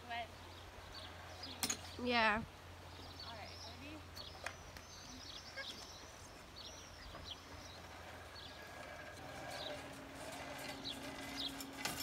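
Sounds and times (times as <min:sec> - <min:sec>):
faint birds chirping: 0:00.0 - 0:12.0.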